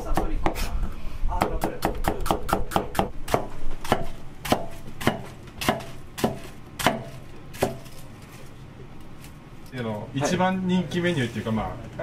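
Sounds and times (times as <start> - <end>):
knife chopping on cutting board: 1.4 - 8.0.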